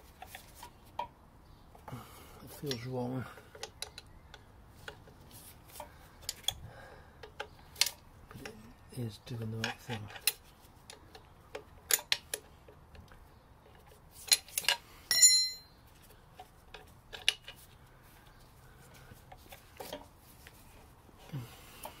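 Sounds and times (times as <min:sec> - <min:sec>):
metal tool clicks and clinks: 0:14.3 - 0:15.7.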